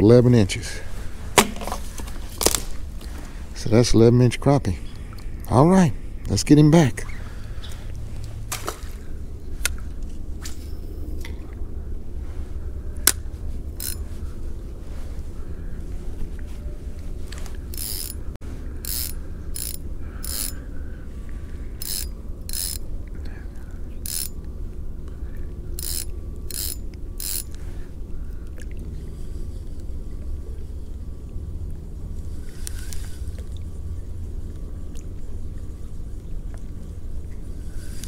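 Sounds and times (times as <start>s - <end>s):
fishing reel ratcheting whir: 13.8s - 14.0s, 17.7s - 18.2s, 18.8s - 20.6s, 21.8s - 22.8s, 24.0s - 24.4s, 25.8s - 27.6s.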